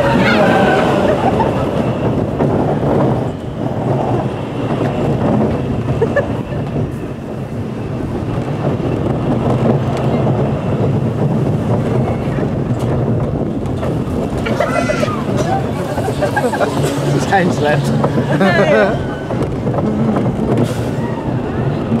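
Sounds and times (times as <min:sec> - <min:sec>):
roller coaster wheels rumbling: 0:00.0 - 0:22.0.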